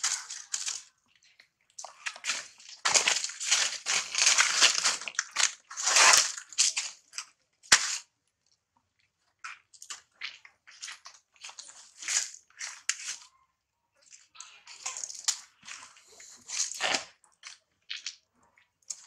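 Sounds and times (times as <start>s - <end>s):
dry leaves crunching: 2.1s - 6.4s.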